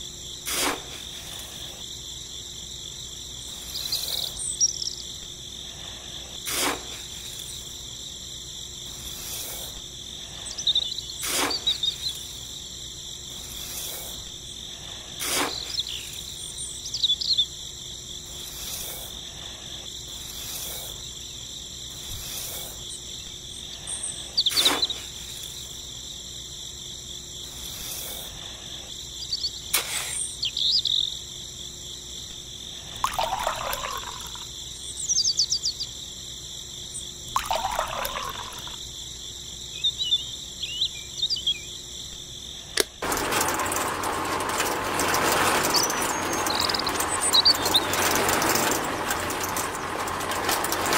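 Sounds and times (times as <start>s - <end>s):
crickets trilling: 0.0s - 50.9s
sharp scrapes or clicks: 0.5s - 1.1s, 6.5s - 7.1s, 11.2s - 11.8s, 15.2s - 15.8s, 29.7s - 30.3s
bird calls: 10.5s - 12.3s, 15.4s - 17.5s, 29.2s - 31.2s, 39.7s - 41.8s, 45.5s - 49.7s.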